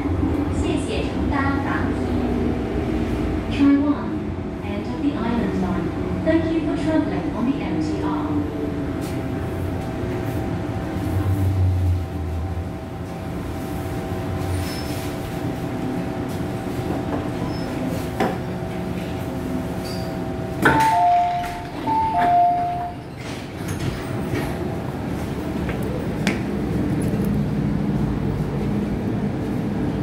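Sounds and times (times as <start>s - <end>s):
train rumbling to a stop: 0.0s - 30.0s
train doors sliding open: 16.2s - 27.6s
two-tone door chime: 20.7s - 23.0s.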